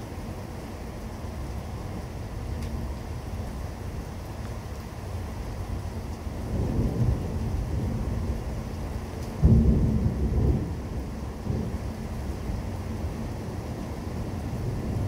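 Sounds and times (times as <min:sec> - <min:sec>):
thunder rumbling: 0:06.4 - 0:15.0
loud thunderclap: 0:09.4 - 0:10.8.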